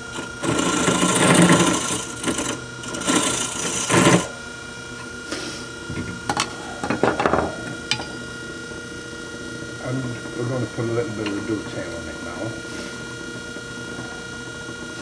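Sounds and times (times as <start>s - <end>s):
lathe motor humming: 0.0s - 15.0s
turning tool scraping wood: 0.2s - 4.4s.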